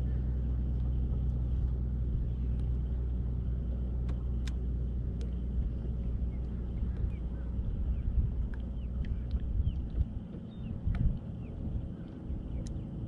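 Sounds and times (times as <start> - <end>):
boat motor humming: 0.0 - 13.0
light sharp clicks: 4.0 - 4.6, 8.4 - 11.3, 12.0 - 12.8.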